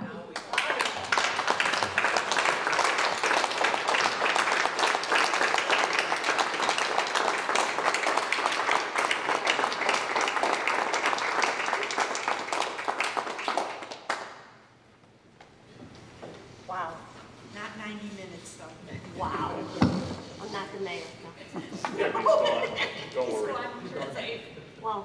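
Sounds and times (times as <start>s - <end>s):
roomful of people applauding: 0.3s - 14.8s.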